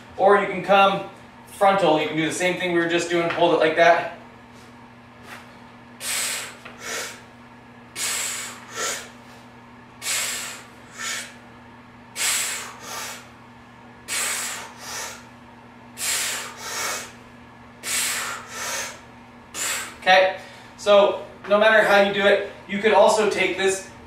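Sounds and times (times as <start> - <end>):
hard breaths through the nose: 6.0 - 7.3, 8.0 - 9.4, 10.0 - 11.4, 12.2 - 13.3, 14.1 - 15.3, 16.0 - 17.2, 17.8 - 20.8.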